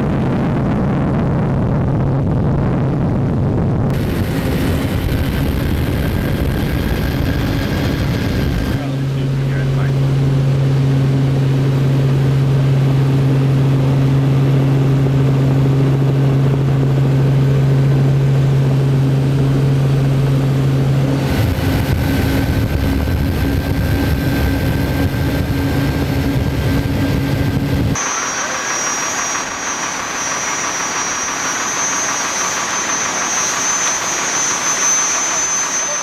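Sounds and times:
boat turbine engines droning: 0:00.0 - 0:36.0
thin high whine: 0:21.2 - 0:36.0.

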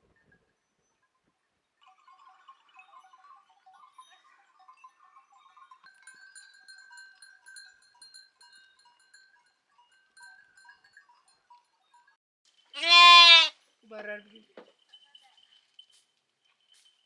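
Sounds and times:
livestock bells tinkling: 0:01.9 - 0:12.2, 0:14.3 - 0:17.0.

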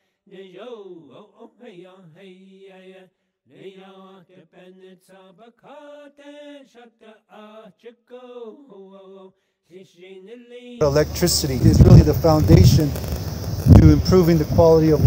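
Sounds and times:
man chanting: 0:10.8 - 0:13.0, 0:13.7 - 0:15.0.

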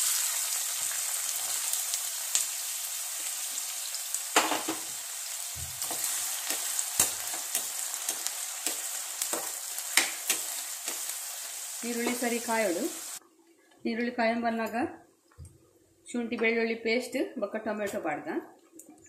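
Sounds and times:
onions sizzling in oil: 0:00.0 - 0:13.2.

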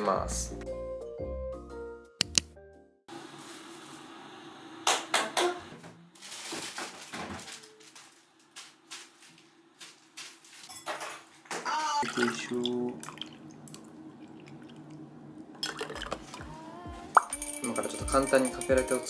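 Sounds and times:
kitchen items clattering: 0:06.2 - 0:09.1, 0:09.8 - 0:12.5.

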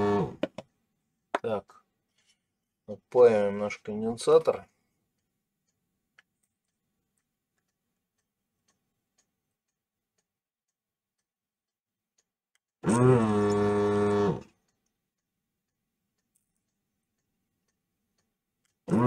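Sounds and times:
vacuum pump humming: 0:12.8 - 0:14.4.

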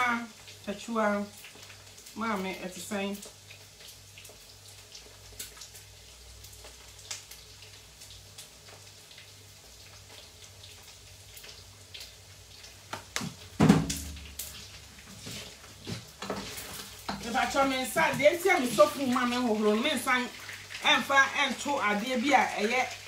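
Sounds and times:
loud knock or clatter: 0:13.6 - 0:14.2.

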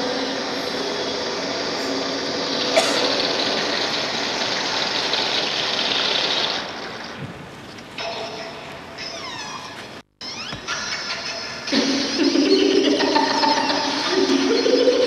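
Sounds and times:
loud rushing noise: 0:00.0 - 0:07.6.

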